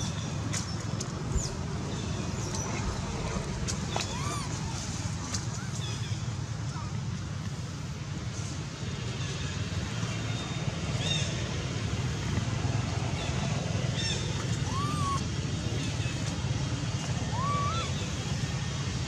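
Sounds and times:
low outdoor rumble: 0.0 - 19.0
whistled calls: 3.8 - 4.9, 14.0 - 15.4, 17.2 - 18.2.

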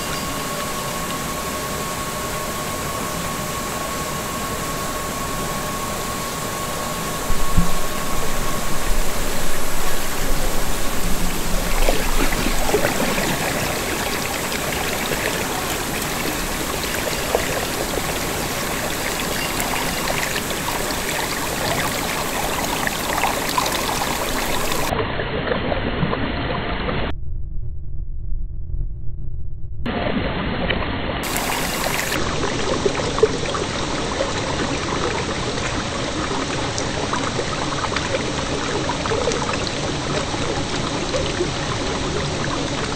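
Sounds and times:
water rushing down a drain: 6.7 - 27.1, 30.6 - 42.9.

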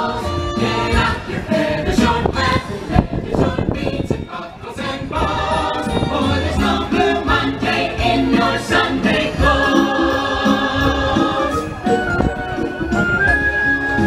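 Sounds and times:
group of voices singing: 0.0 - 12.6
instrumental backing: 4.1 - 14.0.

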